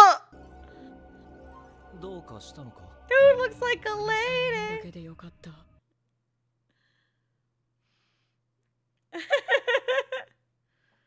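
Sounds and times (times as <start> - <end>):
woman laughing: 9.2 - 10.3.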